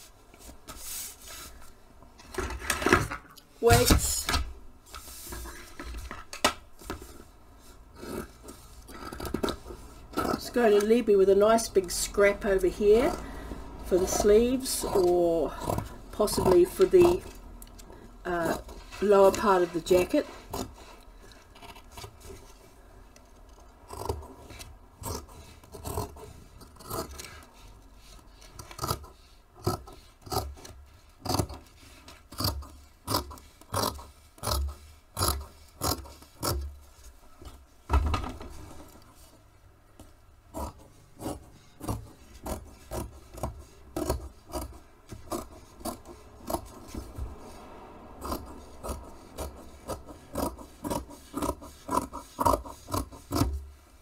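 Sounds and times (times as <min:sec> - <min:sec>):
scissors snipping fabric: 0:28.4 - 0:36.7, 0:40.0 - 0:47.3, 0:48.2 - 0:53.6.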